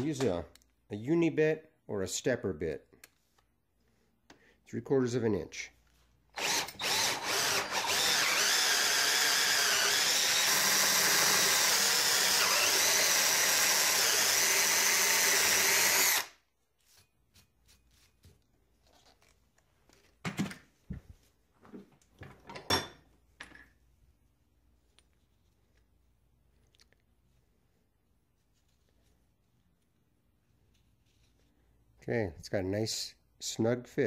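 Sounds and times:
cordless drill drilling metal: 6.3 - 16.4
drill trigger blips: 6.4 - 16.3.

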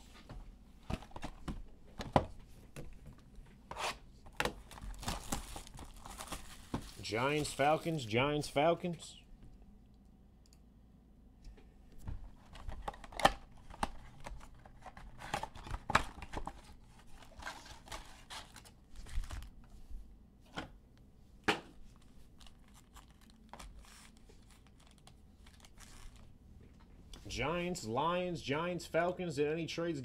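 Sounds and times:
plastic wrap and foil crinkling: 4.5 - 8.1, 14.3 - 19.6, 22.0 - 26.3.

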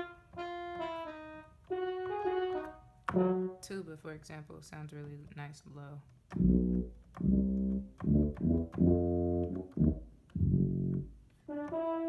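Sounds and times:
low tuba notes on keyboard: 0.0 - 3.8, 6.3 - 12.0.

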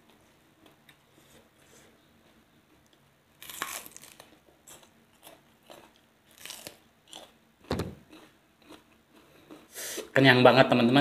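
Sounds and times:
crunching chews: 3.4 - 7.4.

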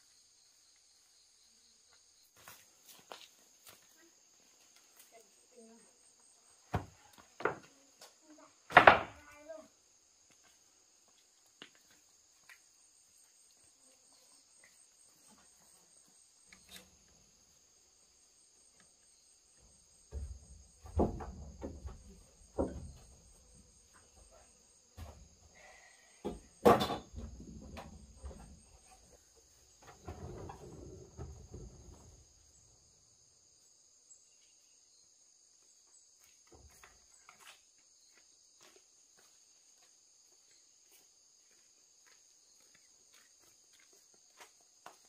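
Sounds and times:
insects chirping: 0.0 - 45.0
knocks and thumps: 8.7 - 9.2, 20.0 - 23.4, 26.2 - 29.2, 29.8 - 32.2.

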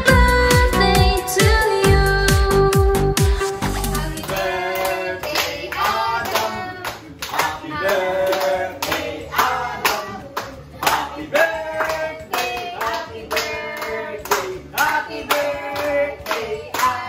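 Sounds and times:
person singing: 0.0 - 5.3
hand-clapping in time: 3.2 - 17.0.

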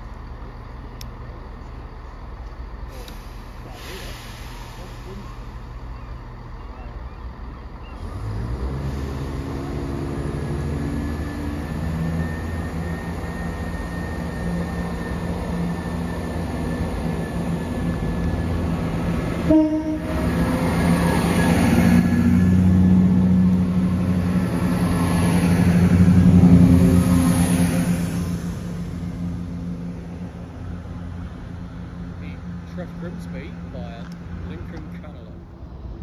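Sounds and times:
diesel train passing: 0.0 - 36.0
train horn: 19.4 - 20.6.

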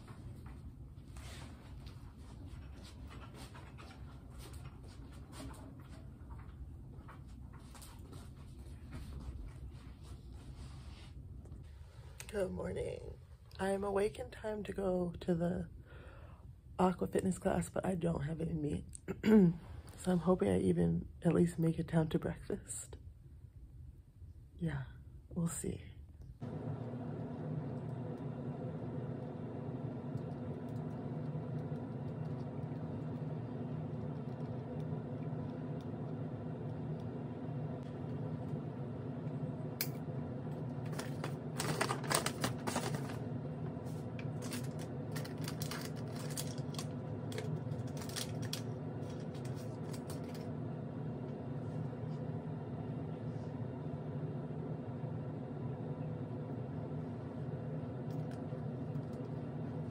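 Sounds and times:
low hum: 0.0 - 59.9
plastic clicks and rustles: 44.2 - 50.5.

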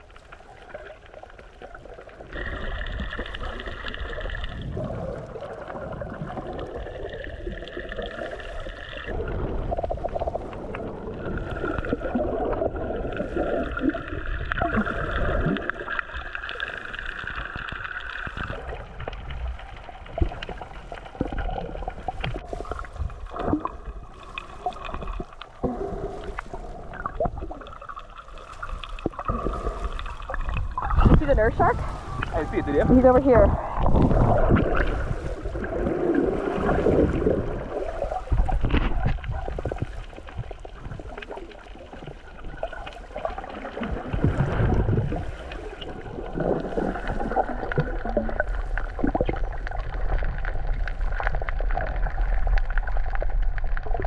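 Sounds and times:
underwater water rumble and gurgling: 0.0 - 54.0.

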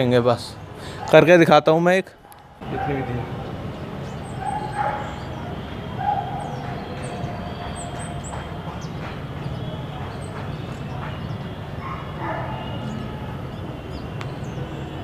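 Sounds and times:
animal calls: 2.2 - 13.6.

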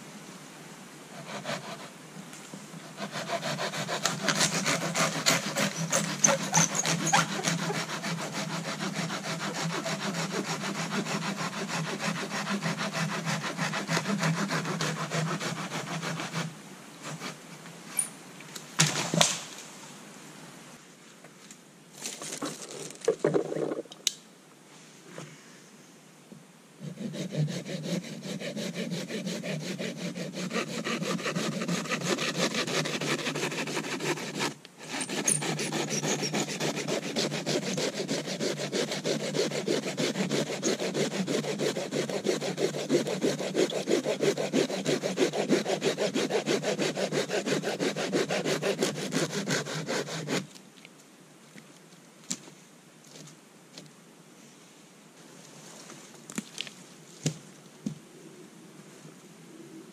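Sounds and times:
hand saw cutting wood: 1.2 - 1.9, 2.9 - 17.4, 26.8 - 50.5.

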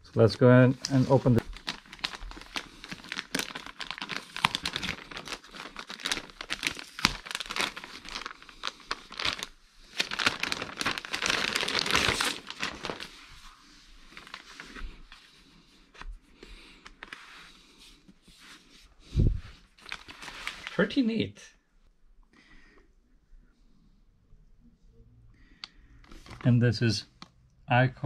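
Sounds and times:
plastic sleeve crinkling and tearing: 0.8 - 15.1, 19.6 - 21.0, 26.0 - 26.5.

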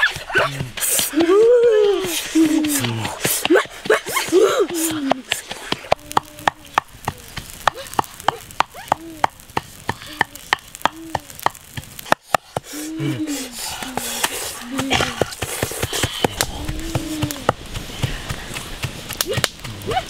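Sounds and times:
person crying out: 10.0 - 11.4, 12.8 - 13.5.

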